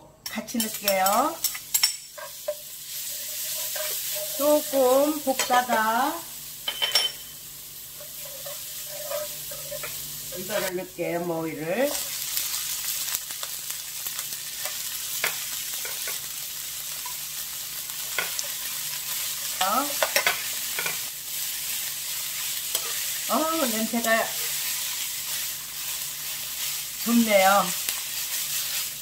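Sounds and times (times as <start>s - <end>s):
stems sizzling in hot oil: 0.3s - 29.0s
metal spoon scraping pan: 0.5s - 5.9s, 8.0s - 10.8s, 22.3s - 23.2s.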